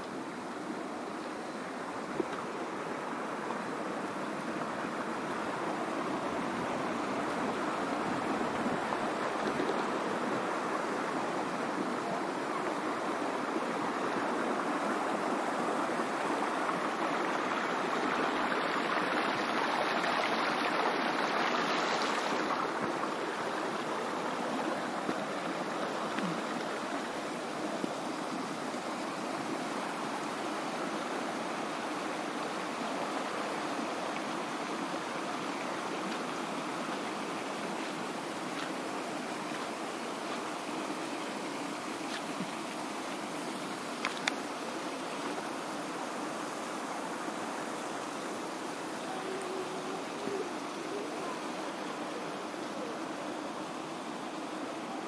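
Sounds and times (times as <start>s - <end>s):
river rushing over stones: 0.0s - 55.0s.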